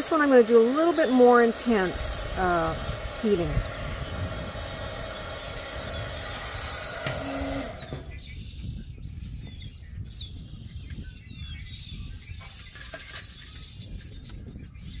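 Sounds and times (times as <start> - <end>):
heat gun fan hum: 0.0 - 8.3
wind on microphone: 0.0 - 15.0
bird chirping: 5.8 - 15.0.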